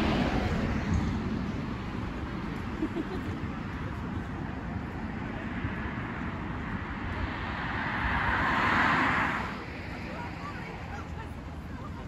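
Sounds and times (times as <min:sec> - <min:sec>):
outdoor background rumble: 0:00.0 - 0:12.0
vehicle passing by: 0:02.9 - 0:12.0.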